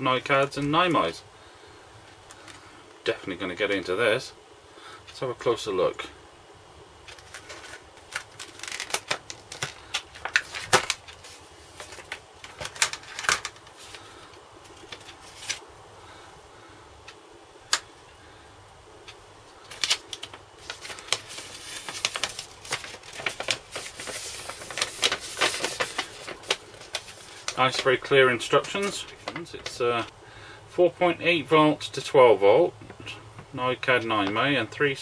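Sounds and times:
plastic packaging crackling: 0:07.0 - 0:15.6, 0:19.5 - 0:30.1
paper rustling: 0:07.1 - 0:15.6, 0:19.6 - 0:30.1.

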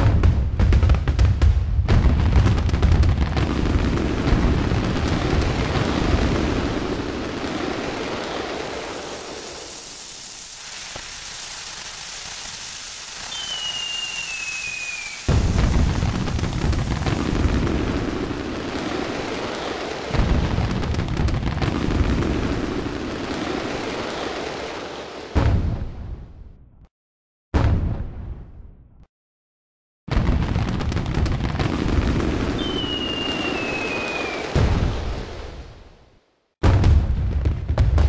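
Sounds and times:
fireworks booming: 0:00.0 - 0:26.8, 0:27.6 - 0:29.0, 0:30.1 - 0:36.0, 0:36.6 - 0:38.0
firework whistle falling in pitch: 0:13.1 - 0:15.6, 0:32.6 - 0:34.5.

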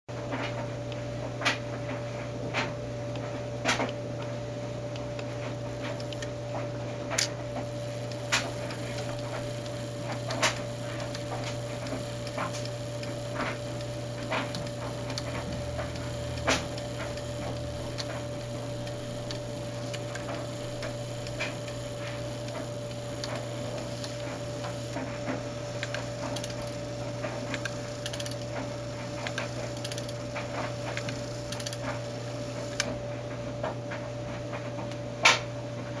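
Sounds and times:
steady hum: 0:00.1 - 0:36.0
clock ticking: 0:08.0 - 0:25.1.

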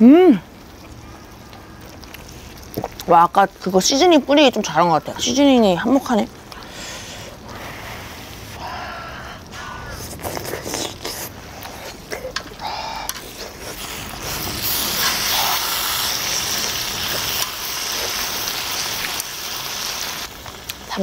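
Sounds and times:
meat sizzling on a griddle: 0:13.6 - 0:21.0.

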